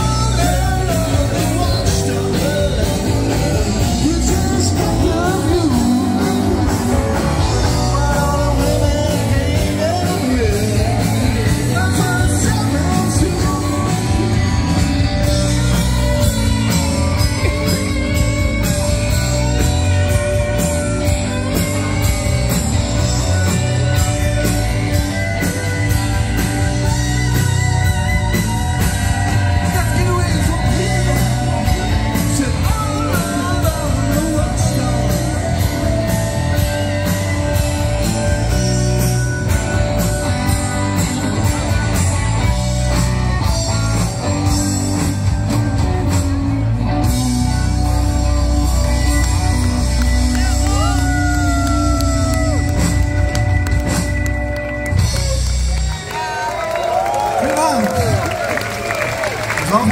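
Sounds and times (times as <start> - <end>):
person singing: 0.0 - 21.5, 28.8 - 41.7
live rock band playing: 0.0 - 59.9.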